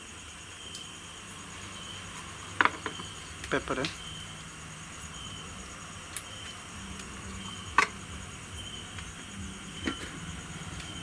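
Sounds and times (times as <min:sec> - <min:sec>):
crickets chirping: 0:00.0 - 0:11.0
steady hiss: 0:00.0 - 0:11.0.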